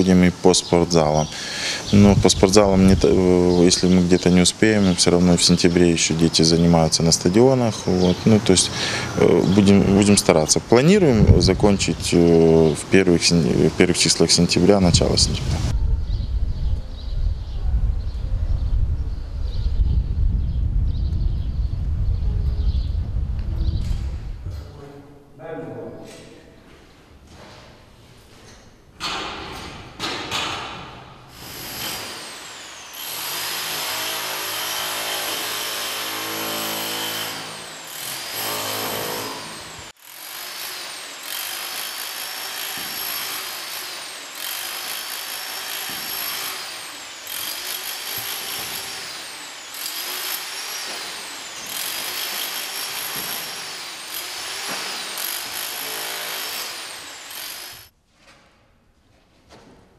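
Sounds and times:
rotary hammer chiselling plaster: 0:31.4 - 0:39.4, 0:40.1 - 0:57.9.

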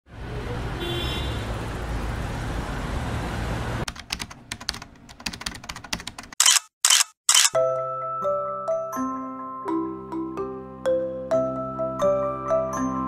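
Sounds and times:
street traffic: 0:00.1 - 0:05.2
computer keyboard typing: 0:03.9 - 0:07.6.

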